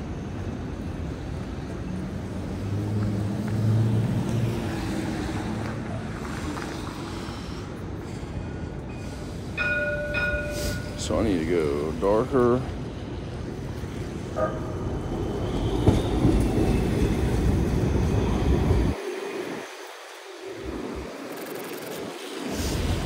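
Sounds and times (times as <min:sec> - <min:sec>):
street noise: 0:00.0 - 0:23.0
passing vehicle hum: 0:01.2 - 0:08.0
steady high tone: 0:09.6 - 0:12.1.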